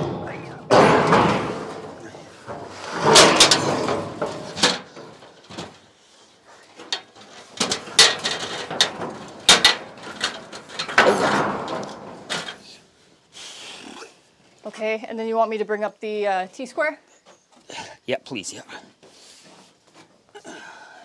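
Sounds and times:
knocks and clatter of roof building: 0:00.0 - 0:06.0, 0:06.6 - 0:12.8.

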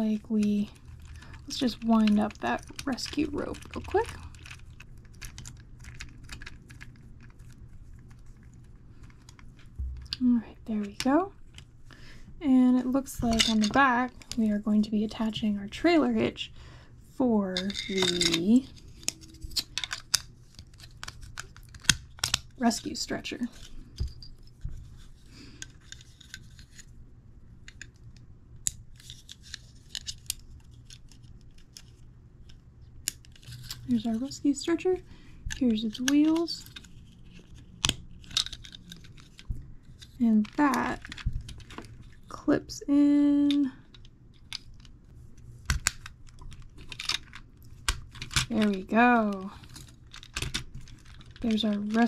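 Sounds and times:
plastic clicks and rubbing: 0:00.4 - 0:10.2, 0:35.5 - 0:42.2, 0:43.4 - 0:52.0
plastic toy parts clicking: 0:17.6 - 0:22.5, 0:35.5 - 0:41.9, 0:45.7 - 0:48.9, 0:49.6 - 0:52.0.

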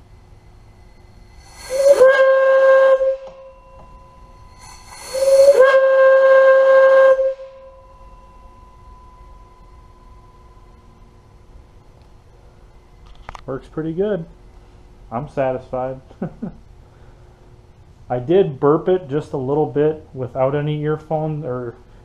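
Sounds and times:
steam whistle blowing: 0:00.8 - 0:11.4.

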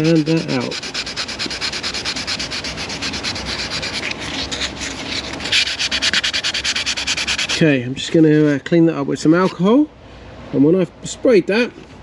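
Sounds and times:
sandpaper rubbing leather: 0:00.0 - 0:07.6.

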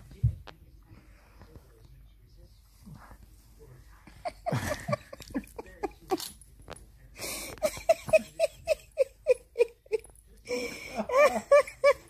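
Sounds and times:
person laughing: 0:04.2 - 0:06.3, 0:07.4 - 0:10.1.

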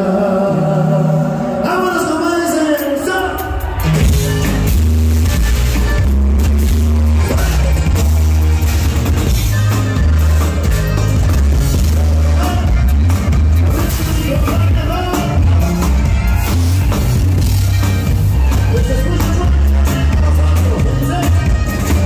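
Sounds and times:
electric guitar: 0:02.8 - 0:22.0
drum kit: 0:03.3 - 0:22.0
booming bass line: 0:03.6 - 0:22.0.

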